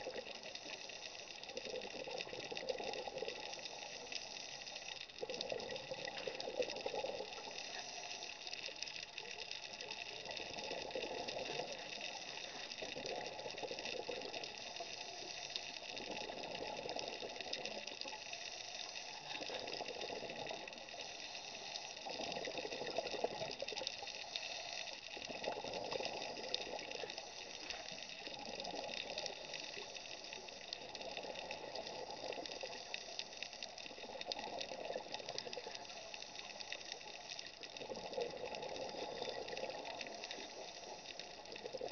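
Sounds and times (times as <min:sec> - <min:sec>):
steady underwater hiss: 0:00.0 - 0:41.9
underwater bubbles gurgling: 0:00.0 - 0:41.9.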